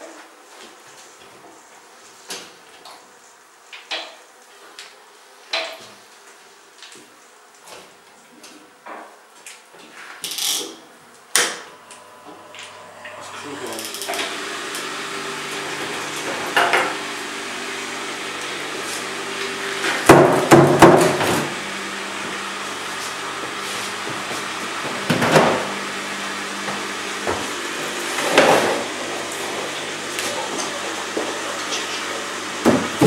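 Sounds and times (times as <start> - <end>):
motor humming: 11.6 - 33.0.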